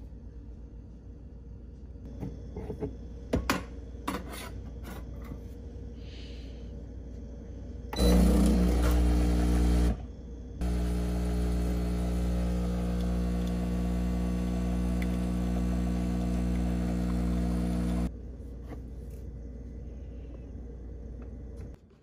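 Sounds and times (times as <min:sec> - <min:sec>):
espresso machine pump buzzing: 0:08.0 - 0:18.1.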